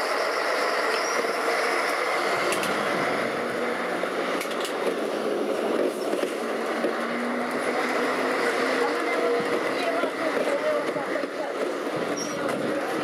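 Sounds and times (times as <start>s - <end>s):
tram wheels rolling on rails: 0.0s - 13.0s.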